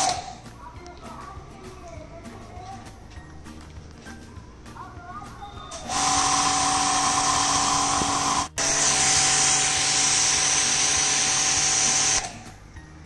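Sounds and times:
pressure washer motor whine: 0:05.7 - 0:12.4.

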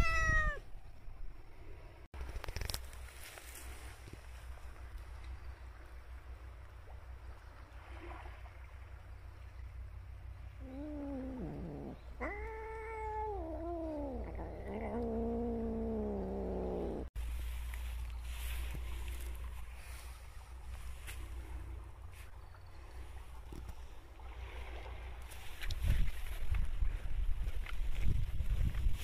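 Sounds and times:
cat yowling: 0:00.0 - 0:00.7, 0:10.6 - 0:17.1.

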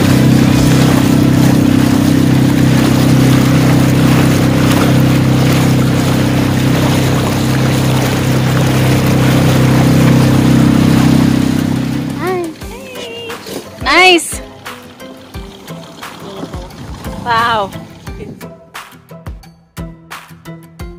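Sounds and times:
motorboat engine droning: 0:00.0 - 0:18.4
water splashing along hull: 0:00.0 - 0:18.5.

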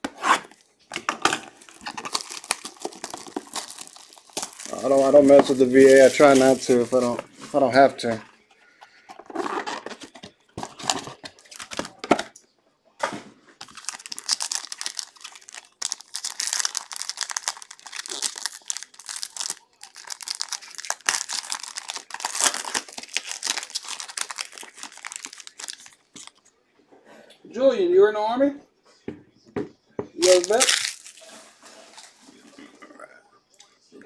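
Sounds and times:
packaging rustling: 0:01.3 - 0:08.2, 0:09.1 - 0:12.2, 0:13.6 - 0:26.4, 0:30.2 - 0:32.2
foil wrapper crinkling and tearing: 0:01.5 - 0:07.2, 0:13.6 - 0:26.4, 0:30.2 - 0:31.4.

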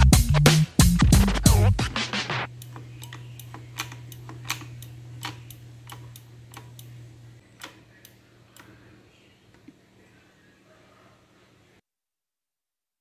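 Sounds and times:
low steady hum: 0:02.5 - 0:11.8.

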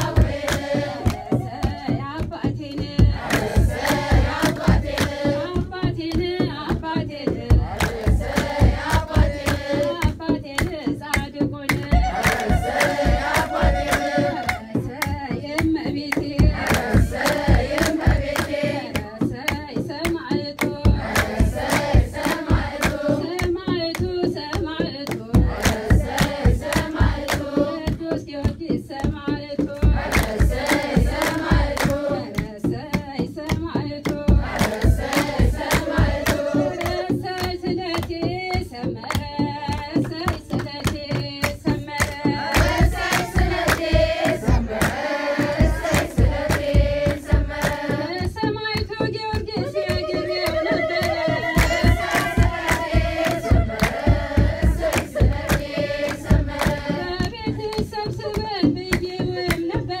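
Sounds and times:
group singing a hymn: 0:00.0 - 0:02.0, 0:03.0 - 0:05.6, 0:07.4 - 0:10.0, 0:12.0 - 0:14.9, 0:16.4 - 0:19.0, 0:20.9 - 0:23.4, 0:25.4 - 0:27.9, 0:29.8 - 0:32.5, 0:34.3 - 0:37.5, 0:42.2 - 0:48.3, 0:49.6 - 0:57.7
low drum beat: 0:00.0 - 0:10.8, 0:11.8 - 0:28.2, 0:29.1 - 0:38.8, 0:41.6 - 0:59.7
fast hand clapping: 0:00.0 - 1:00.0.

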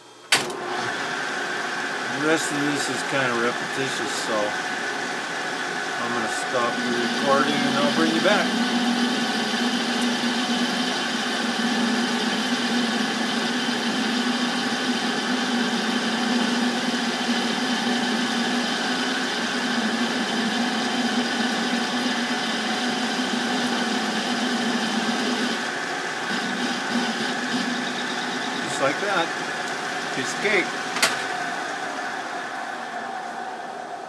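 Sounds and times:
metal lathe humming and whining: 0:00.6 - 0:34.0.

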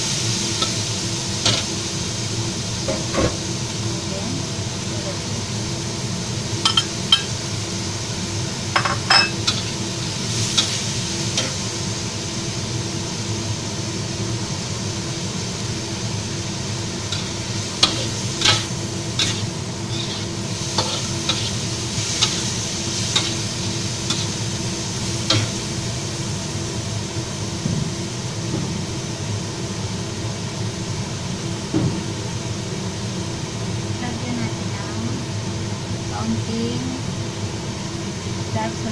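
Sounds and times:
food sizzling in a wok: 0:00.0 - 0:38.9
metal spatula scraping a wok: 0:09.4 - 0:09.8, 0:17.1 - 0:24.4.

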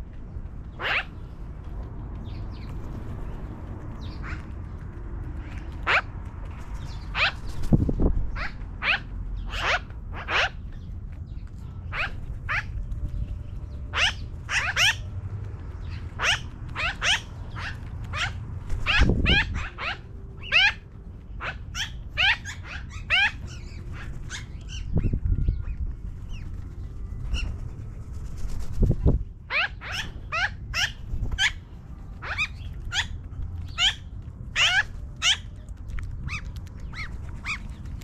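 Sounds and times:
magpies chattering: 0:00.7 - 0:01.2, 0:05.4 - 0:06.1, 0:06.8 - 0:07.6, 0:08.3 - 0:11.0, 0:11.7 - 0:15.1, 0:15.8 - 0:26.5, 0:29.5 - 0:38.0.

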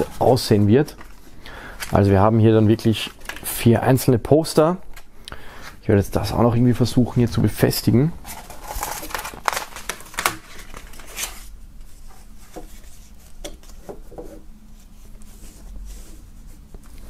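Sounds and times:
paper crackling: 0:00.0 - 0:03.7, 0:08.2 - 0:13.8.

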